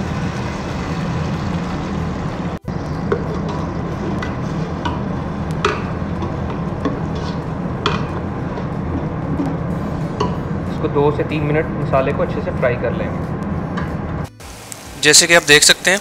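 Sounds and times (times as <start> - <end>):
oil sizzling: 0.0 - 16.0
metal spatula scraping a pan: 3.2 - 5.0, 5.6 - 10.2.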